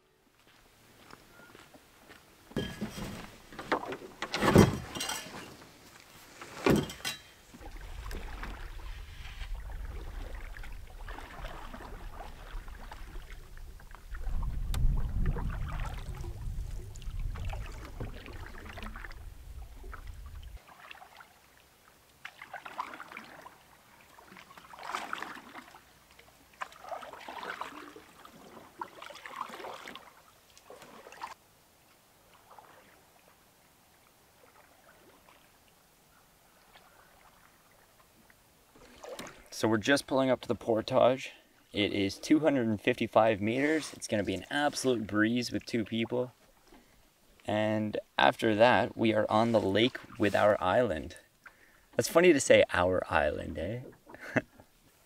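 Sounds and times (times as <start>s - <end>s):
sharp knocks and clunks: 2.5s - 5.4s, 6.6s - 7.3s
paddles splashing in water: 2.6s - 31.4s, 32.2s - 33.5s, 34.3s - 35.8s, 36.5s - 39.6s
low rumble: 7.8s - 20.6s.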